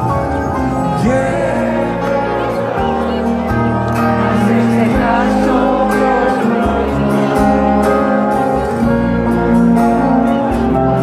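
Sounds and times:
held bass notes: 0.0 - 11.0
live band music: 0.0 - 11.0
person singing: 0.8 - 8.7.

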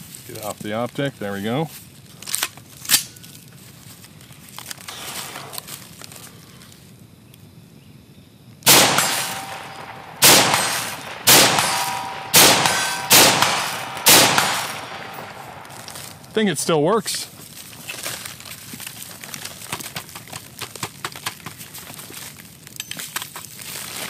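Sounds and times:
rifle shots: 8.6 - 16.3.

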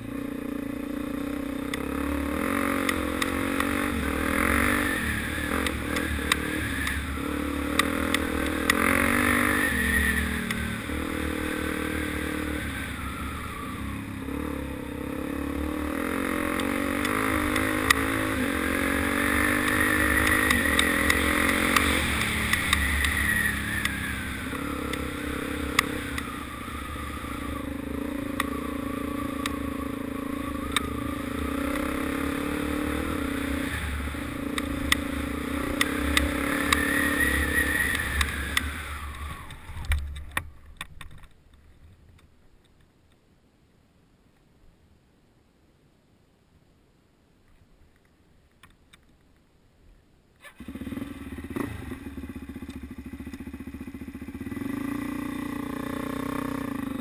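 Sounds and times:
dirt bike engine revving: 0.0 - 40.0, 50.4 - 57.0
sharp clicks: 30.7 - 30.9, 35.7 - 36.9.

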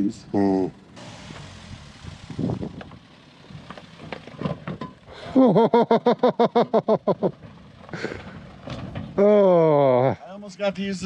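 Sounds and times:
person laughing: 5.2 - 8.3, 9.2 - 10.2
low knocks and rattles: 7.2 - 9.2.

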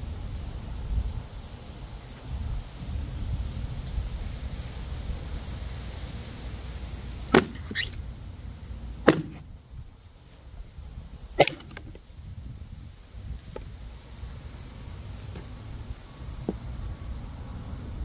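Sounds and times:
hatchet chopping into wood: 7.3 - 7.9, 9.0 - 9.4, 11.4 - 12.0
wood struck on board splitting: 7.3 - 8.0, 9.0 - 9.5, 11.4 - 12.0.

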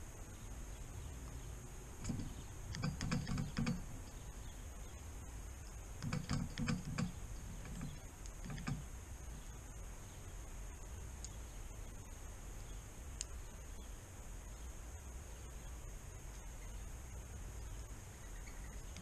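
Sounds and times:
woodpecker pecking: 1.2 - 9.7, 17.6 - 19.0.

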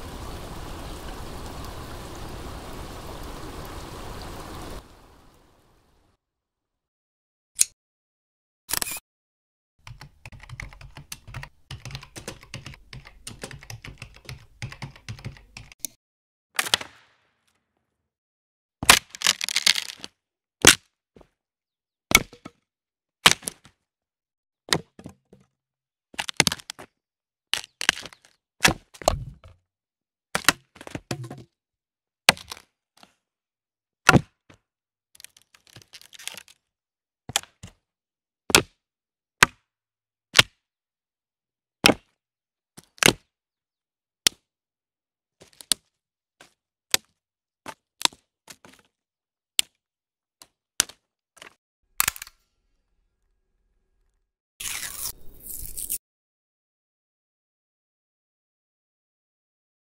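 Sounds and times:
small crackles: 35.2 - 36.6.

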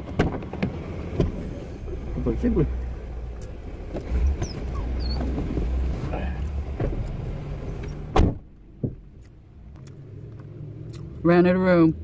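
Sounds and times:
low steady rumble: 0.0 - 12.0
faint high squeaks: 4.0 - 5.6
car door slamming: 6.7 - 7.2, 7.8 - 9.1.

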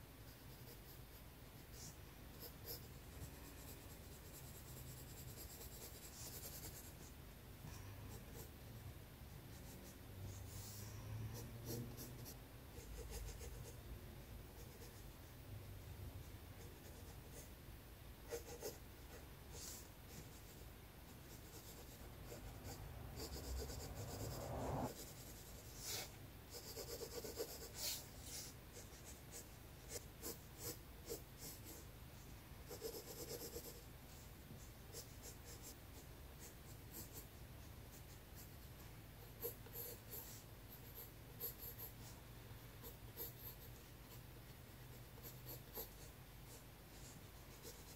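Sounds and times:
pencil scratching on paper: 0.3 - 7.2, 8.1 - 8.6, 9.5 - 13.8, 14.5 - 15.2, 16.6 - 17.5, 18.3 - 31.9, 32.6 - 47.9
short rising sound: 23.9 - 24.9.

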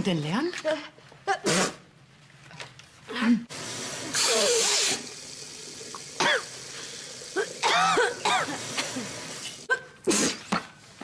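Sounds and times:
woman sneezing: 1.3 - 1.8, 9.7 - 10.5
woman blowing her nose: 1.4 - 1.8, 4.1 - 5.1, 6.4 - 10.6.

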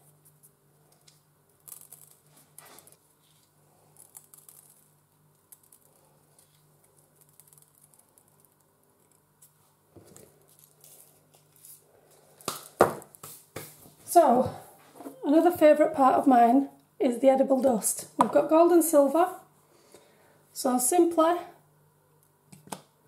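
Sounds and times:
low steady hum: 0.0 - 23.0
sprinkles pattering: 3.9 - 9.2.

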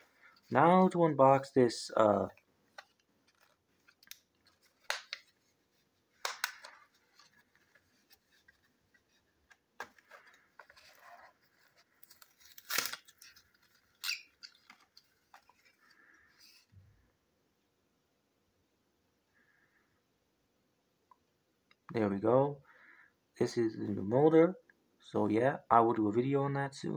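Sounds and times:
plastic and cardboard crinkling: 2.3 - 16.7
loud packaging snap: 4.0 - 5.2, 6.2 - 6.8, 12.4 - 13.2.

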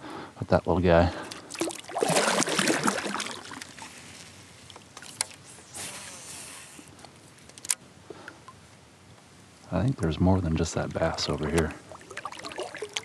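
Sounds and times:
water lapping: 1.1 - 6.9, 11.0 - 13.0
water splashing beside kayak: 1.2 - 6.2, 11.1 - 13.0.

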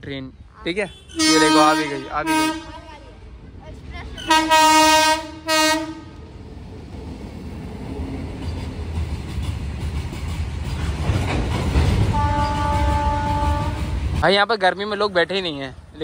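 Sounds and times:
train horn: 1.1 - 2.9, 4.2 - 6.2, 12.1 - 14.0
freight wagons rumbling and rattling: 7.5 - 16.0.

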